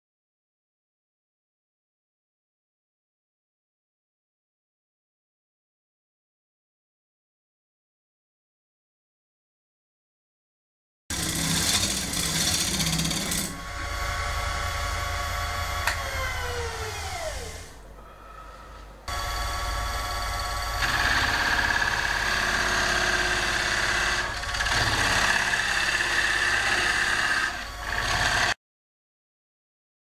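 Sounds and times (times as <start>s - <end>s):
turning tool scraping wood: 11.1s - 17.7s, 20.8s - 28.6s
wood lathe motor spinning: 11.1s - 17.8s, 19.1s - 28.6s.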